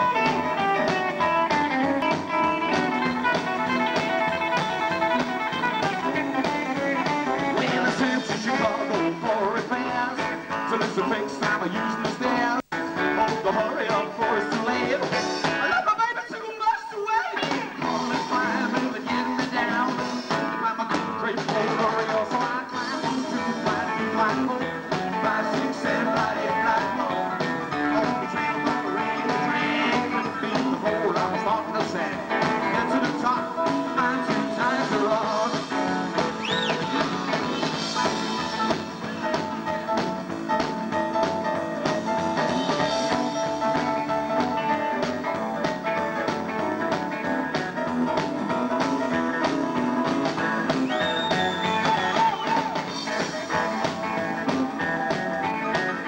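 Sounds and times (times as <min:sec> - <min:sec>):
acoustic guitar: 0:00.0 - 0:15.9, 0:17.2 - 0:56.0
rockabilly band playing: 0:00.0 - 0:56.0
man singing: 0:06.7 - 0:38.8, 0:50.4 - 0:56.0.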